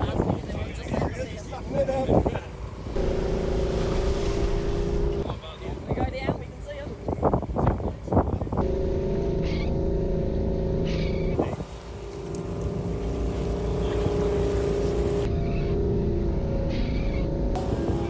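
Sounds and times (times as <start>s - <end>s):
river water rushing and splashing: 2.9s - 5.2s
vehicle engine under load: 8.6s - 18.0s.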